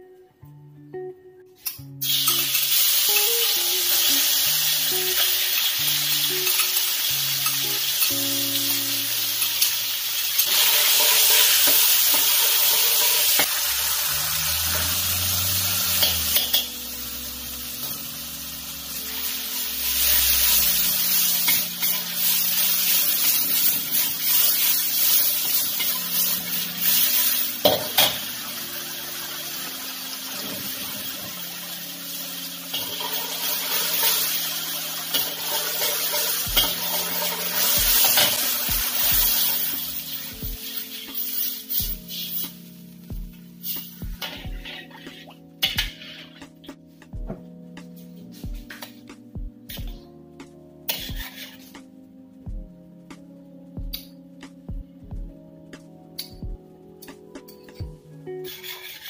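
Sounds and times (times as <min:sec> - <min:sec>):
paste sizzling in hot oil: 0:02.0 - 0:46.4, 0:58.4 - 0:59.0.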